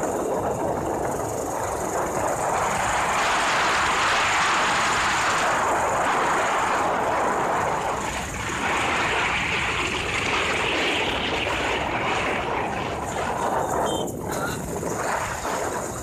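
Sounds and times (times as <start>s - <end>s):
motorbike road noise: 0.0s - 16.0s
wind buffeting microphone: 0.0s - 16.0s.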